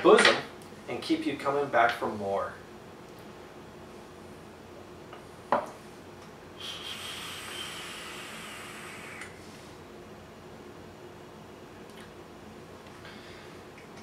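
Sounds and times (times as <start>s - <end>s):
e-cigarette hiss with thin whistle: 6.6s - 9.4s.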